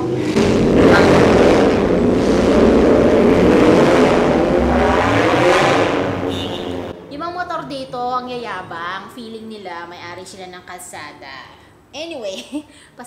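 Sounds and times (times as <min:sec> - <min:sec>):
loud motorcycle engine: 0:00.0 - 0:07.0.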